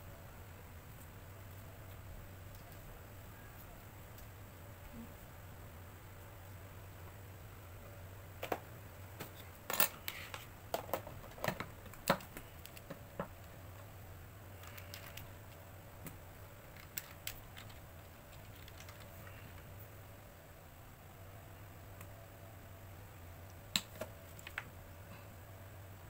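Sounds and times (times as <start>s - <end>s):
sharp clicks of small items: 14.6s - 19.7s.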